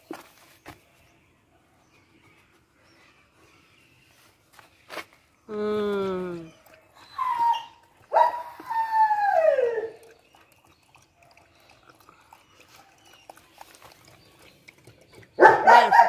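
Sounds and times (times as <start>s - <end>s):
dog feeding at plastic bowl: 9.8s - 16.0s.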